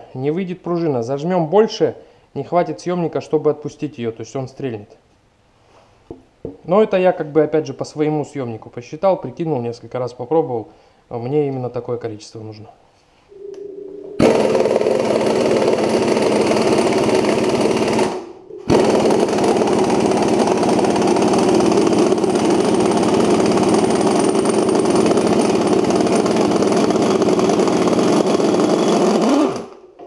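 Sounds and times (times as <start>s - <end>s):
pneumatic impact wrench hammering: 14.2s - 29.8s.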